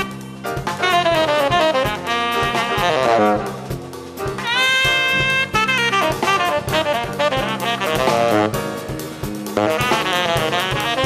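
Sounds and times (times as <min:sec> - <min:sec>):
tenor saxophone solo: 0:00.0 - 0:03.8, 0:04.4 - 0:08.9, 0:09.5 - 0:11.0
drum kit: 0:00.0 - 0:11.0.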